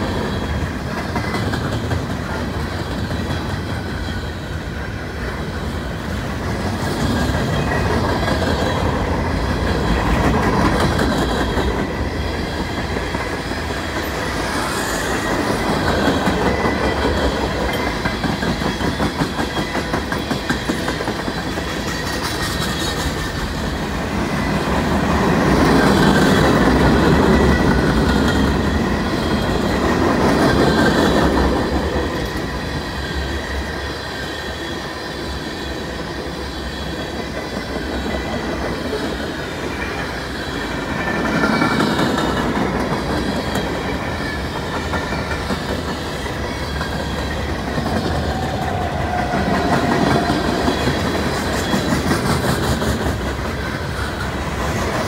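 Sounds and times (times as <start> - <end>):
freight train wheels clacking: 0.0 - 55.0.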